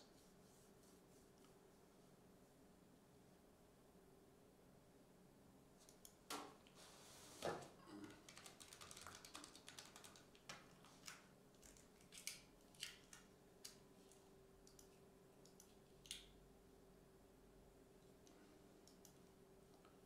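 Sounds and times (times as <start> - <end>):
keyboard typing: 8.0 - 11.8
computer mouse clicks: 14.6 - 16.2, 18.8 - 19.2.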